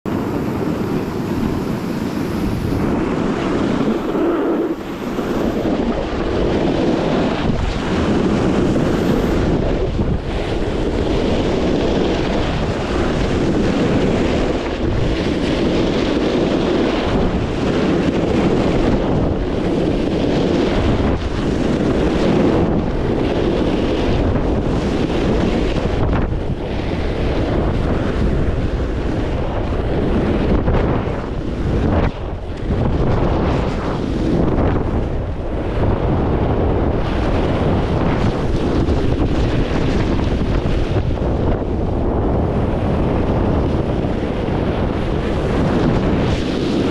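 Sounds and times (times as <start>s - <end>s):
wind buffeting microphone: 0.0s - 46.9s
skis hissing on snow: 1.5s - 5.8s, 8.0s - 9.5s.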